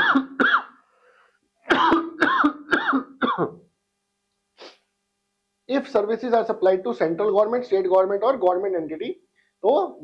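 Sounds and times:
man coughing: 0.0 - 0.8, 1.7 - 3.6.

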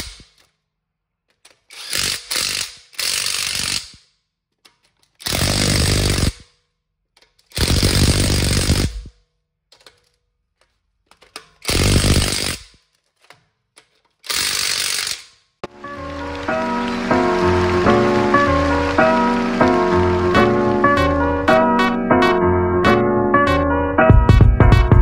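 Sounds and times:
impact wrench hammering bolts: 0.0 - 0.6, 1.3 - 6.6, 7.2 - 15.4
background music: 15.6 - 25.0.

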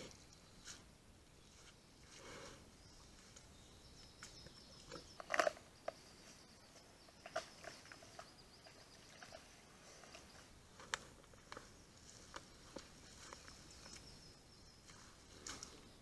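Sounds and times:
bear crunching: 4.2 - 6.0, 6.7 - 14.1.

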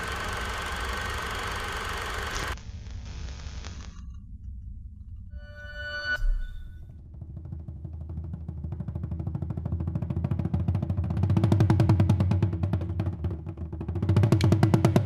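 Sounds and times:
fast pulsing beat: 0.0 - 2.6.

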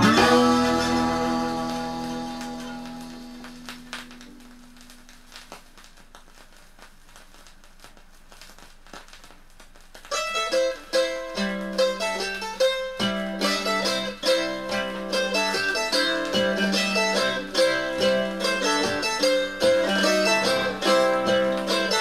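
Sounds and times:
bass line: 0.0 - 4.9
plucked strings: 0.0 - 5.5, 10.1 - 22.0
vinyl hiss and crackles: 0.0 - 22.0.

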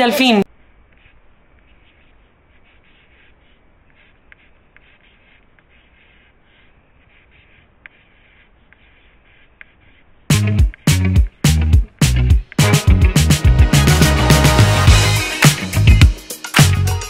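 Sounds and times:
pencil scratching on paper: 0.6 - 11.0
pencil ticking on page: 0.8 - 10.9.

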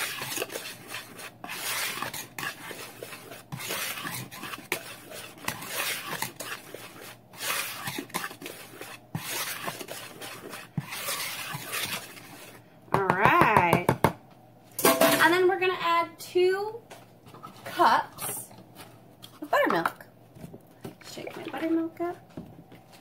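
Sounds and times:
whisk scraping in plastic bowl: 0.0 - 12.6.

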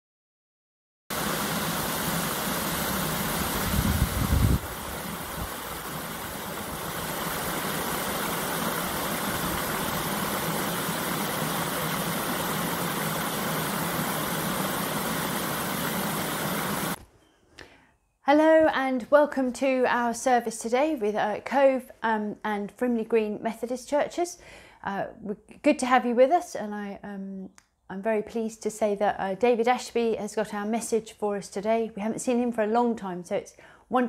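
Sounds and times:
waterfall rushing: 1.1 - 17.0.

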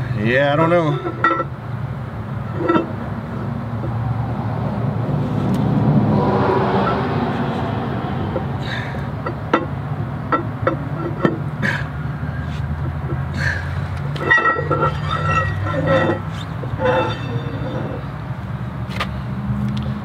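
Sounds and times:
metal tools clinking and knocking: 0.5 - 1.5, 14.1 - 18.0
low engine hum: 1.0 - 20.0
higher tones: 14.1 - 18.1.

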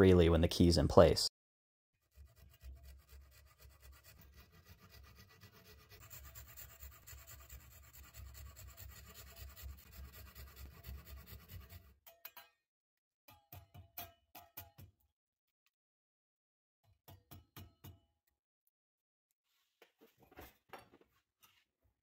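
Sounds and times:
handsaw rasping through wood: 2.0 - 12.0.

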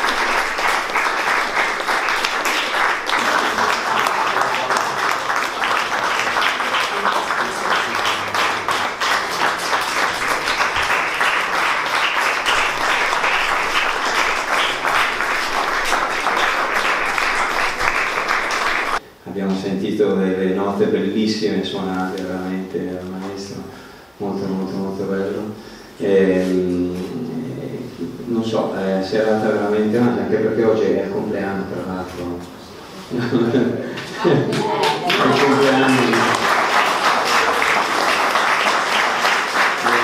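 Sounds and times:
crowd applauding: 0.0 - 19.0, 33.9 - 40.0.

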